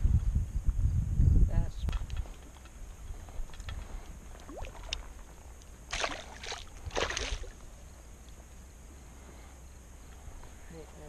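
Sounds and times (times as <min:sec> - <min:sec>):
water splashing: 0:04.3 - 0:05.3, 0:05.9 - 0:07.6.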